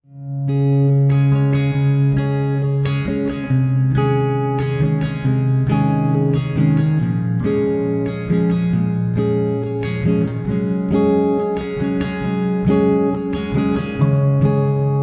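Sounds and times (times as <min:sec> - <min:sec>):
plucked guitar music: 0:00.0 - 0:15.0.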